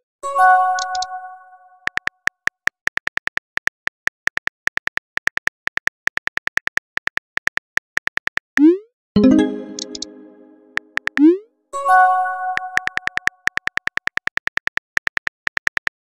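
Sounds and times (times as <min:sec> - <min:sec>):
phone keyboard clicks: 0:12.8 - 0:16.0.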